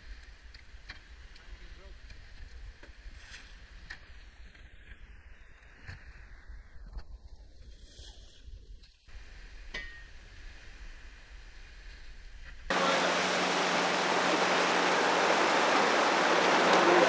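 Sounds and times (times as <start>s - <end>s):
low steady hum: 12.7s - 17.0s
rushing wind and water: 12.7s - 17.0s.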